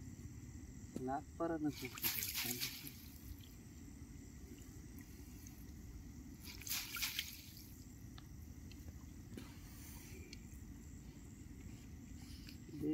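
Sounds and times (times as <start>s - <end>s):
faint outdoor background: 0.0s - 12.9s
water splashing and dripping: 1.7s - 3.6s, 6.4s - 9.2s
fishing net hauled through water: 1.7s - 10.7s.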